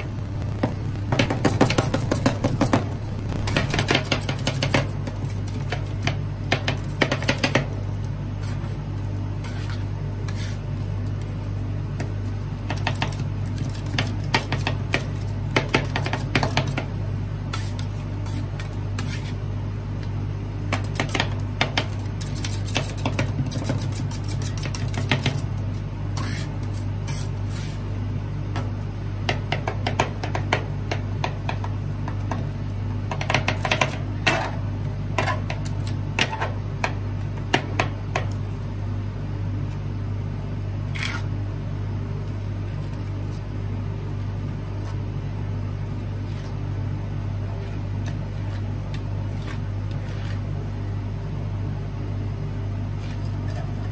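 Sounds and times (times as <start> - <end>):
low machine hum: 0.0 - 22.3
spatula scraping: 9.4 - 11.6, 17.5 - 19.5, 22.0 - 25.5, 26.1 - 27.9, 47.5 - 50.5.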